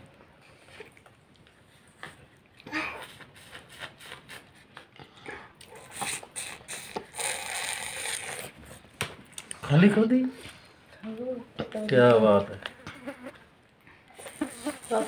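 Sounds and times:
child slurping: 2.6 - 8.6, 14.1 - 15.0.

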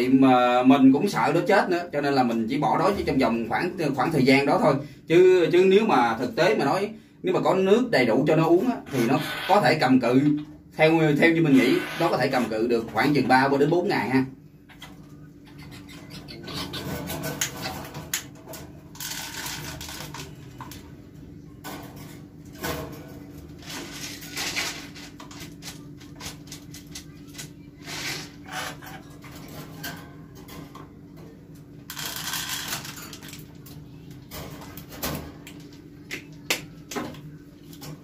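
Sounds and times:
birdcage parts clicking and rattling: 16.4 - 20.8, 21.6 - 27.5, 31.9 - 35.4.

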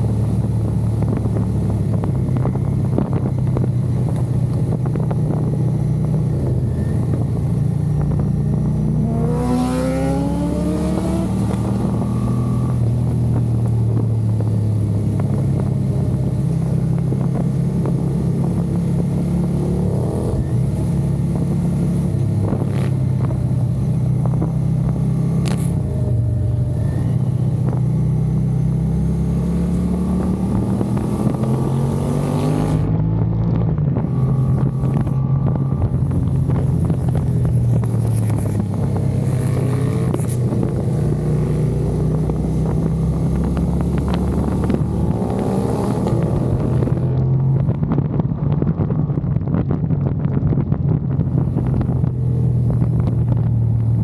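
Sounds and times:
engines revving: 8.6 - 14.1, 28.5 - 47.8.

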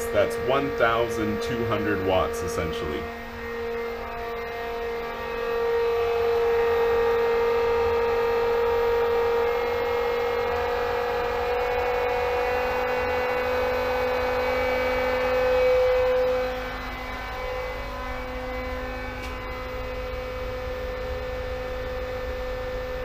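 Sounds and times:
pool pump motor whine: 0.0 - 23.0.

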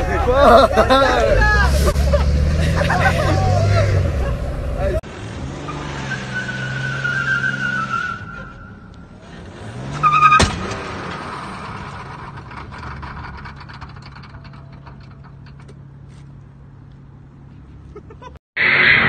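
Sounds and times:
car engine idling: 0.0 - 5.0, 11.2 - 18.0
engine rev: 0.0 - 15.0
sharp crack: 9.9 - 15.8.

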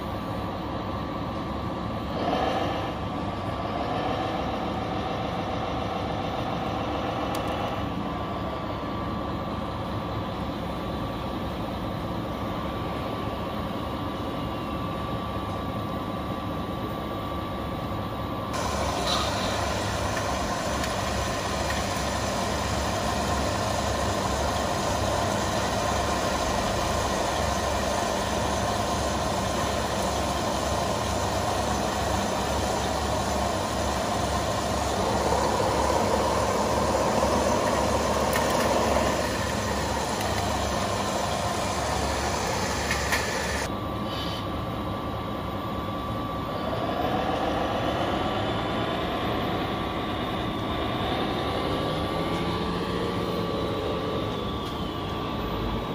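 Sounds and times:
model truck engine drone: 0.0 - 55.9
motor whines: 18.6 - 43.7.

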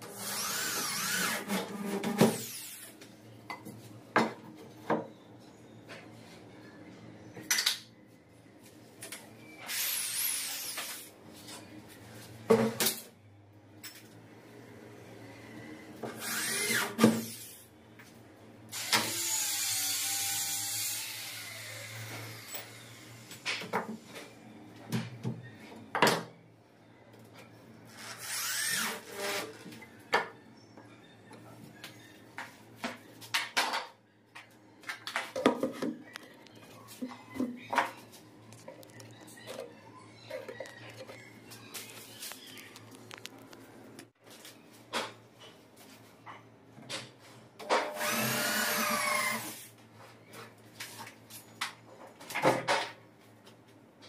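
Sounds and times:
small electric drill running: 0.2 - 1.4, 9.7 - 10.8, 16.2 - 17.5, 18.7 - 23.3, 28.0 - 29.1, 48.0 - 49.7.

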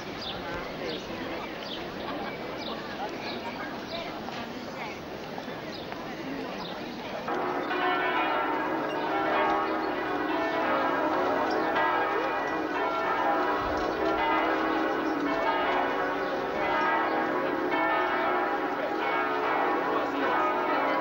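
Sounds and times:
church bells ringing: 7.2 - 21.0.

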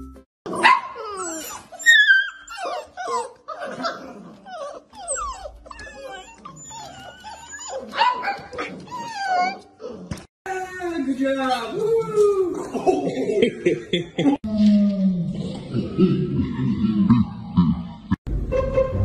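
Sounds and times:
puppies whining and yelping: 0.6 - 10.3.

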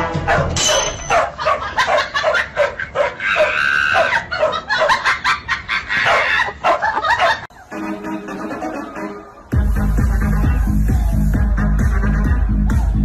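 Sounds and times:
dog yipping: 0.2 - 5.1, 6.0 - 7.5.

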